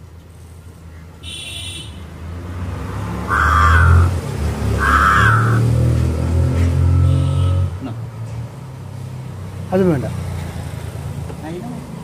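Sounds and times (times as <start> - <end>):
crow cawing: 3.3 - 5.8.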